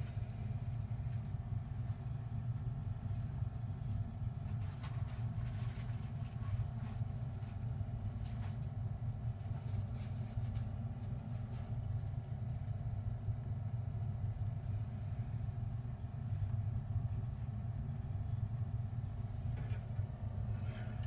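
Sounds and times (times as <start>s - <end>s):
faint rustles and scratches: 0.0s - 13.2s, 19.4s - 21.0s
steady low rumble: 0.0s - 21.0s.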